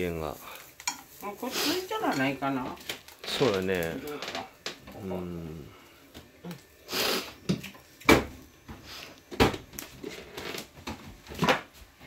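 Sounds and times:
short scraping hiss: 6.8 - 7.4.

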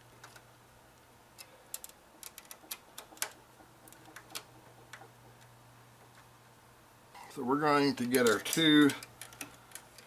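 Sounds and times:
small clicks of computer parts: 0.2 - 5.5, 8.0 - 10.0.

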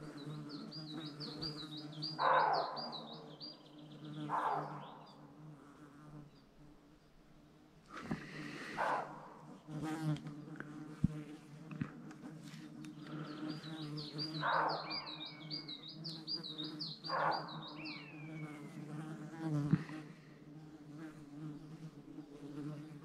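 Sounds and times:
flying insect buzzing: 0.0 - 7.0, 7.9 - 23.0
deer barking hoarsely: 2.2 - 3.0, 4.3 - 5.0, 8.6 - 9.5, 17.1 - 17.7.

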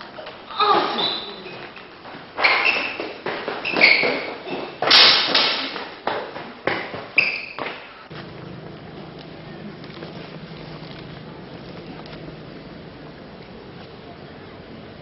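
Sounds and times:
running footsteps: 6.0 - 15.0
low steady hum: 8.1 - 15.0.

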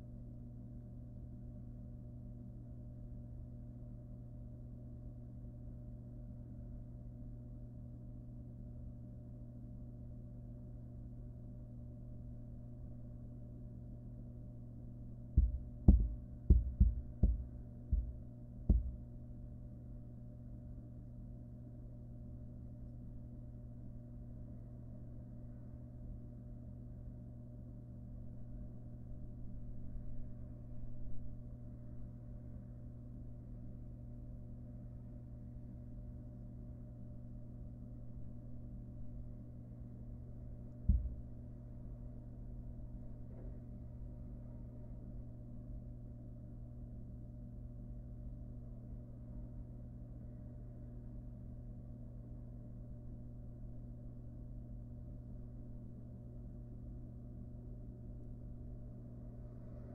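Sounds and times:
steady low hum: 0.0 - 59.9
dull thumps in wooden box: 15.4 - 19.0, 40.9 - 41.2
dull thump in wooden box: 40.9 - 41.2.

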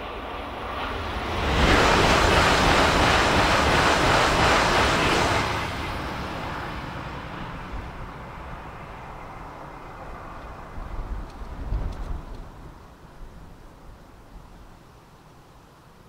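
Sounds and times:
train passing at high speed: 0.0 - 14.6.

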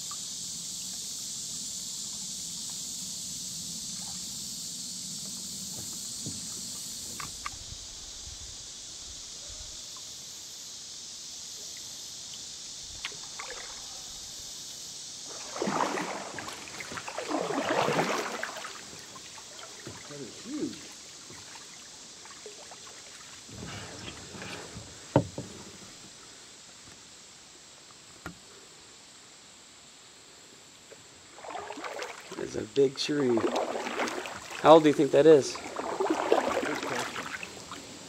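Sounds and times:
steady hiss: 0.0 - 38.0
paddle splashing in water: 12.4 - 14.5, 15.2 - 26.2, 31.2 - 38.0.

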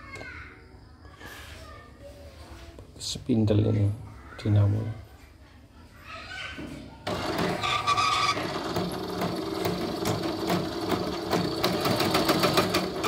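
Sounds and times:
embroidery machine motor hum: 7.1 - 13.0.

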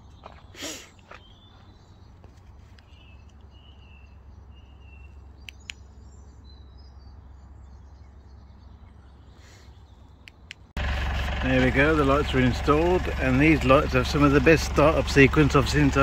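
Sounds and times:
birds chirping: 0.0 - 16.0
sharp clicks: 5.4 - 5.8, 10.2 - 10.7
low steady rumble: 10.8 - 16.0.

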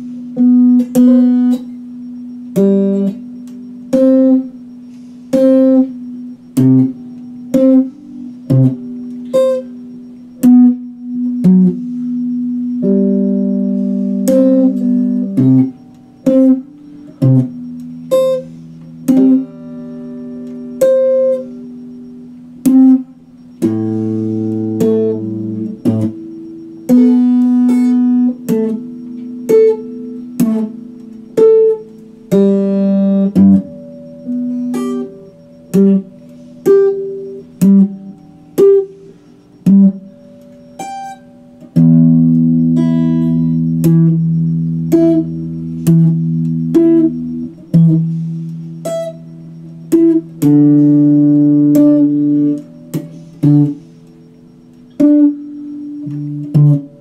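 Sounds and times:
electric guitar notes and chords: 0.0 - 57.0.

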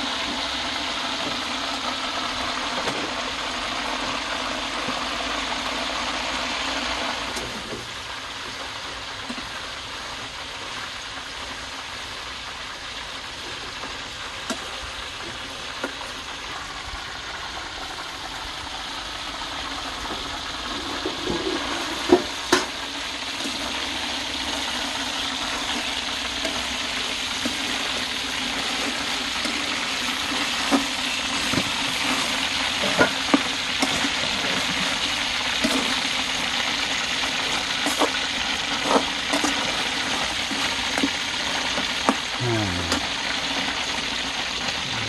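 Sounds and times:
chicken sizzling in frying pan: 0.0 - 45.0
metal spatula scraping pan: 25.4 - 42.2.

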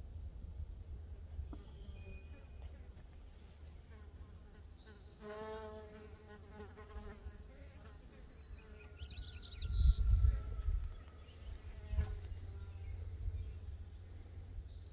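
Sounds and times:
low rumble: 9.6 - 14.9.

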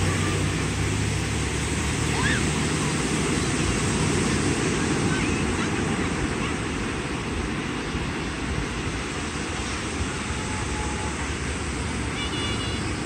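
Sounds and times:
ocean surf breaking: 0.0 - 13.0.

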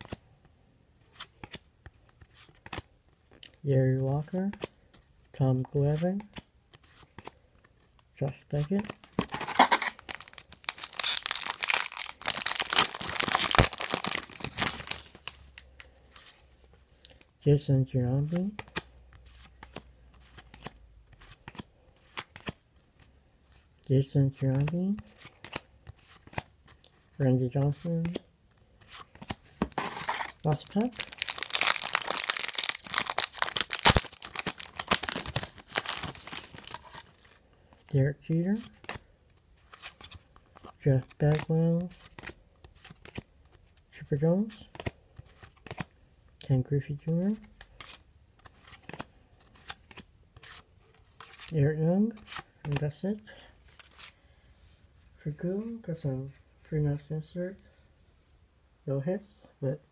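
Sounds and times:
foil wrapper crinkling and tearing: 9.2 - 15.3, 29.7 - 37.2.

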